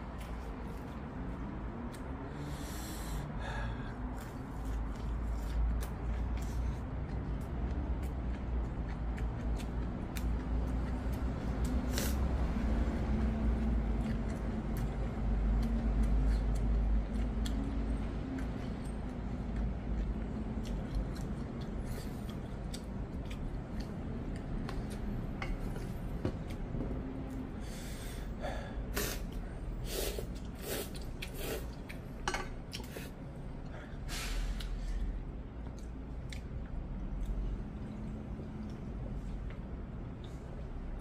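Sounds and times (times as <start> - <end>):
person chewing: 0.1 - 3.2, 3.8 - 26.7, 28.9 - 33.7, 34.5 - 40.6
person slurping noodles: 11.9 - 12.3, 28.9 - 29.2, 29.8 - 31.8.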